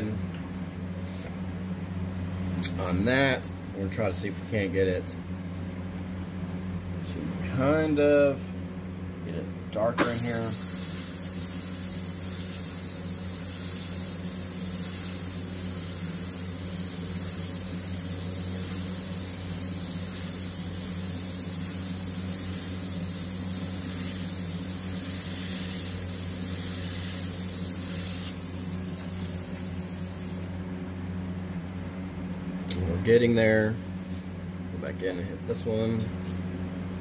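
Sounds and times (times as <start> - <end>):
airbrush spraying hiss: 10.0 - 30.6.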